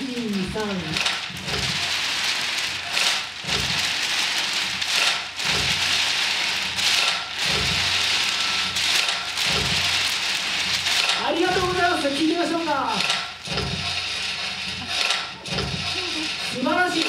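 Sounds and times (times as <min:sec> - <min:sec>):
paper rustling: 0:00.0 - 0:17.0.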